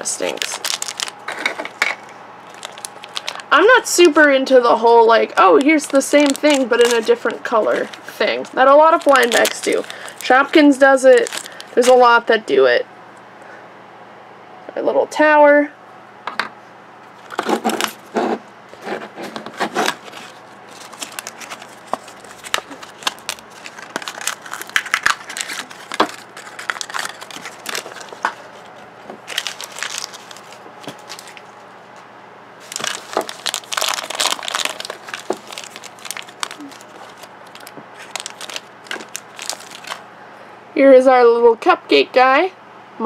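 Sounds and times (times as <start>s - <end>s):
scissors cutting plastic bag: 0.0s - 1.8s, 2.5s - 4.2s, 5.3s - 12.1s, 19.5s - 28.5s, 29.2s - 31.4s, 32.6s - 40.0s
plastic packaging crinkling: 0.0s - 12.2s, 17.2s - 18.2s, 19.4s - 40.1s.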